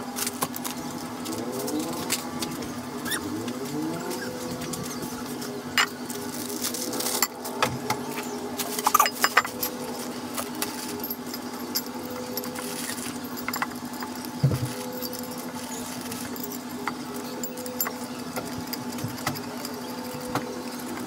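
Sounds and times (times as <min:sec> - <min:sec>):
metal clicks and knocks: 0:16.2 - 0:21.0.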